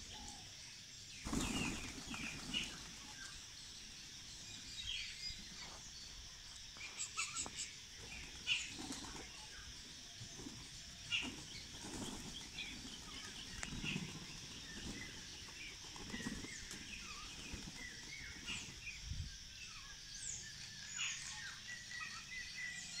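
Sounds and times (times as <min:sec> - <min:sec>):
small birds chirping: 0:00.0 - 0:23.0
pigeon wings fluttering: 0:01.2 - 0:03.4, 0:08.1 - 0:09.6, 0:10.2 - 0:18.6.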